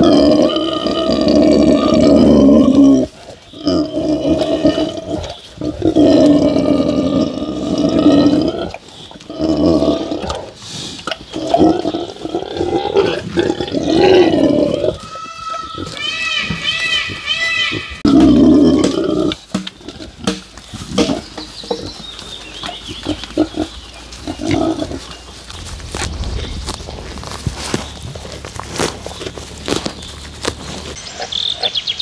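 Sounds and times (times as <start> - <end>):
pigs grunting loudly: 0.0 - 15.1, 17.9 - 21.2.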